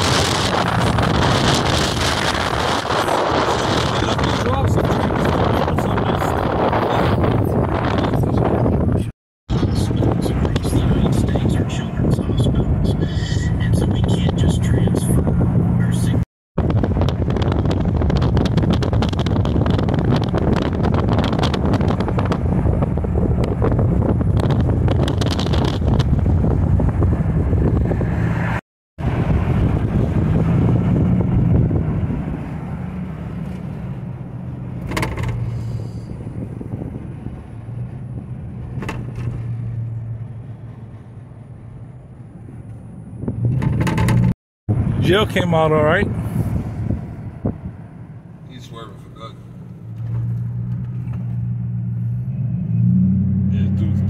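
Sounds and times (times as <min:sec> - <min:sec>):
low engine hum: 0:00.0 - 0:54.0
tyres and wind rushing: 0:00.0 - 0:54.0.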